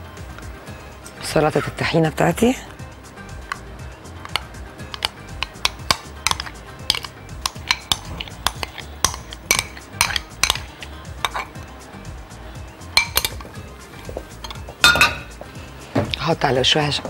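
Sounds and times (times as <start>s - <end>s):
utensil clinking on glass jar: 4.2s - 11.6s, 13.0s - 13.6s, 14.3s - 15.3s.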